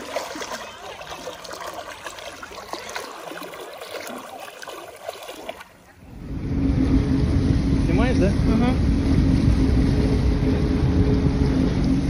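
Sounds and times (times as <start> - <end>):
swim fins splashing water: 0.0 - 6.1
motor low drone: 5.9 - 12.0.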